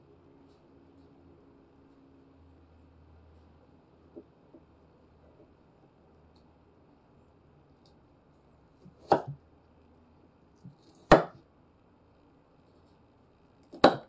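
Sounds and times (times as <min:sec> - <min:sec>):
knife slicing onion: 0:08.7 - 0:09.4, 0:10.5 - 0:11.5, 0:13.6 - 0:14.0.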